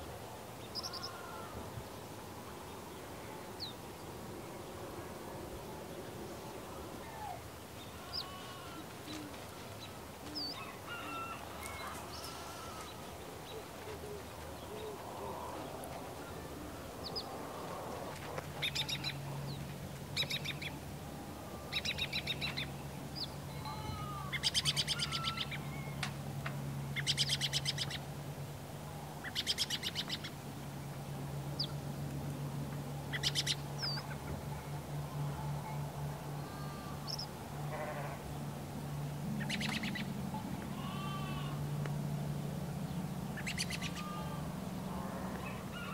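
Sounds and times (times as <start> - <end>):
low steady hum: 0.0 - 45.9
birds rattling honking calls: 7.3 - 16.2, 21.4 - 26.1, 33.1 - 41.8, 43.4 - 45.9.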